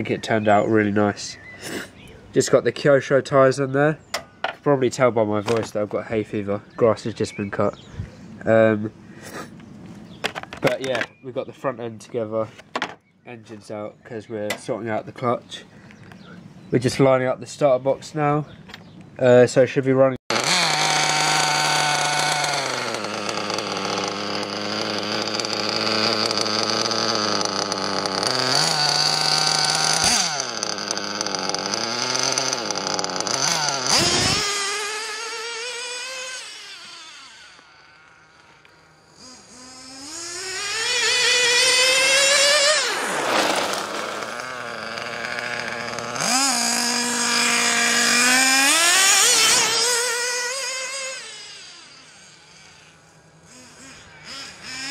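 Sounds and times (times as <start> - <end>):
model car nitro engine revving: 20.3 - 54.9.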